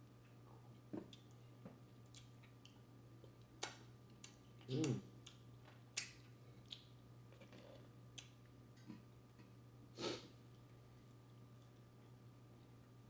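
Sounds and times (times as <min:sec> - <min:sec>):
steady low hum: 0:00.0 - 0:13.0
lip smacks and clicks: 0:03.5 - 0:07.0
sniff: 0:10.0 - 0:10.4.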